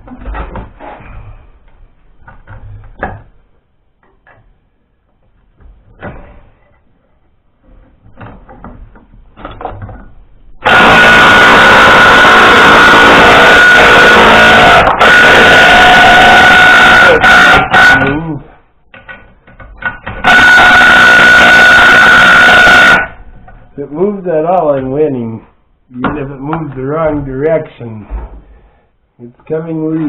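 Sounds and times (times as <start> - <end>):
loud machine noise with whine: 10.6 - 18.2, 20.1 - 23.6.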